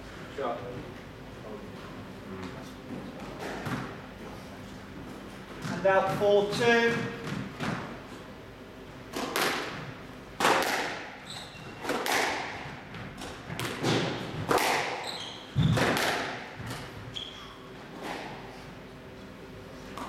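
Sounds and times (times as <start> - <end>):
squash ball hits: 9.1 - 16.9.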